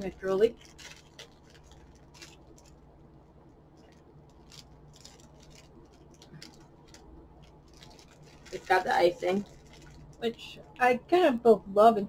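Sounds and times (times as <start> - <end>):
plastic wrapper crinkling: 0.0 - 10.8.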